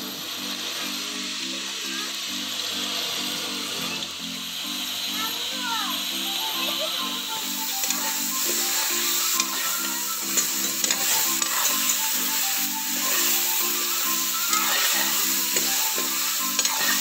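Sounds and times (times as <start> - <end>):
background music: 0.0 - 17.0
fish sizzling in hot oil: 0.0 - 17.0
metal ladle scraping a wok: 7.8 - 17.0.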